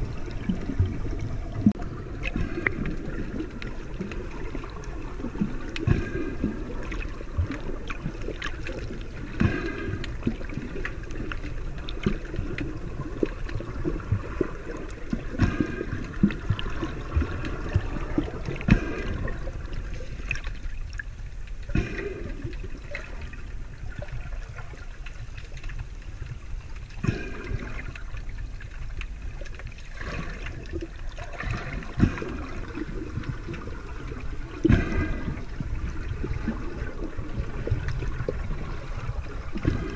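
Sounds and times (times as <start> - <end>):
water gurgling underwater: 0.0 - 39.9
bubbly bursts: 29.9 - 39.9.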